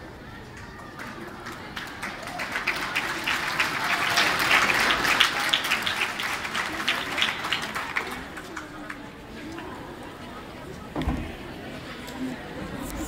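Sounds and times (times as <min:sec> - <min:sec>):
audience applauding: 0:00.6 - 0:09.0.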